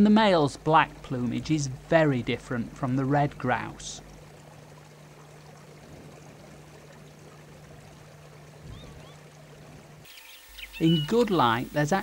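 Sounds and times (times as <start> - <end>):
distant rushing water: 0.0 - 12.0
low steady hum: 0.0 - 12.0
small bird chirps: 8.7 - 9.2, 10.1 - 11.5.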